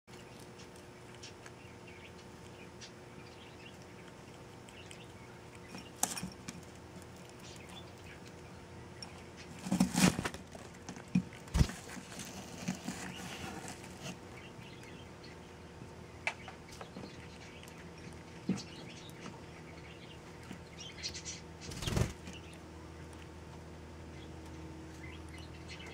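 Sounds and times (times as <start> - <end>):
rustling in cardboard box: 9.5 - 10.7, 11.5 - 14.2.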